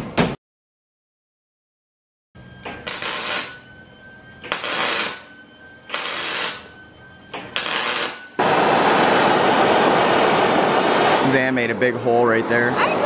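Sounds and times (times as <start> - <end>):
welding arc crackling and hissing: 2.7 - 3.6, 4.4 - 5.3, 5.9 - 6.7, 7.4 - 13.0
gas torch flame hissing: 5.9 - 6.7, 7.4 - 13.0.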